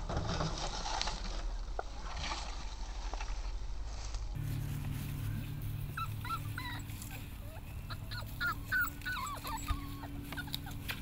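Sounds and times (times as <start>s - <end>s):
steady low hum: 2.8s - 11.0s
puppy whimpering and yipping: 5.8s - 11.0s.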